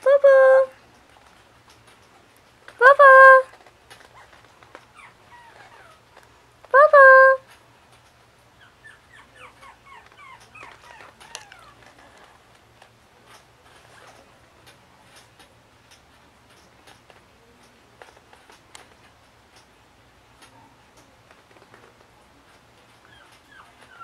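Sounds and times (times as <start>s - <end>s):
faint clicks and rustles: 0.8s - 2.8s, 3.4s - 6.8s, 7.4s - 8.6s, 9.5s - 24.0s
puppy whimpering: 4.9s - 6.0s, 8.6s - 12.2s, 23.0s - 24.0s.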